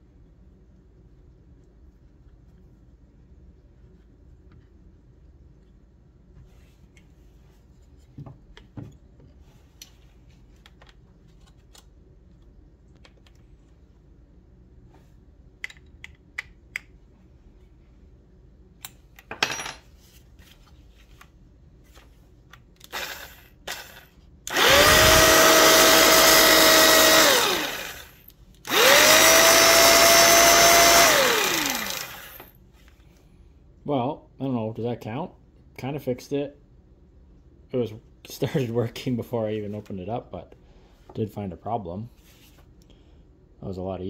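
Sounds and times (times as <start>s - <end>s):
jigsaw motor whining: 22.8s - 32.5s.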